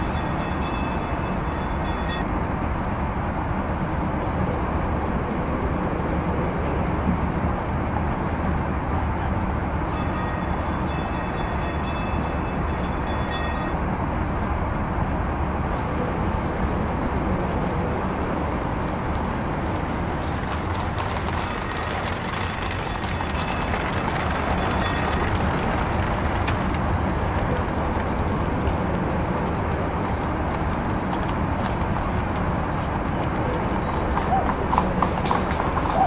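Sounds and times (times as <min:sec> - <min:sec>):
high-pitched ringing tone: 0:00.0 - 0:02.3, 0:33.5 - 0:34.4
streetcar rumbling on rails: 0:00.0 - 0:36.0.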